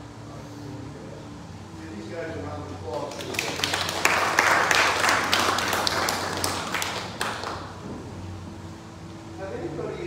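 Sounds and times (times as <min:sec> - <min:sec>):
crowd clapping: 0:02.9 - 0:07.8.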